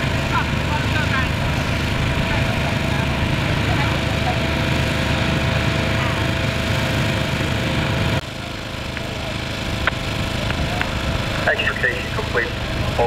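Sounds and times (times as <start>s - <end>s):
small gasoline engine running: 0.0s - 13.0s.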